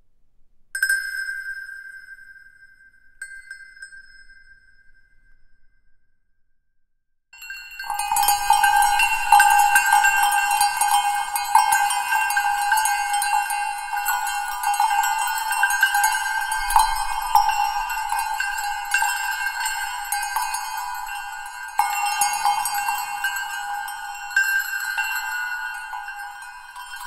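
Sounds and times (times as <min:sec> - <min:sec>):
many bells and jingles ringing: 0:07.4 - 0:27.0.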